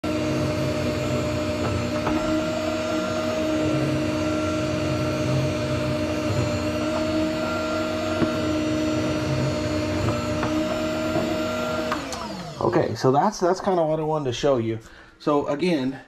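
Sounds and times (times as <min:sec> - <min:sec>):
meat slicer motor humming: 0:00.0 - 0:12.8.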